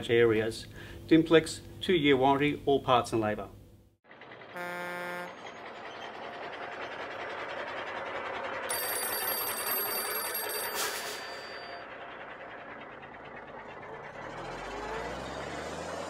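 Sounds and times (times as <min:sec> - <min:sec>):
truck driving: 0:04.0 - 0:16.0
vehicle horn honk: 0:04.6 - 0:05.4
old telephone bell ringing: 0:08.7 - 0:12.4.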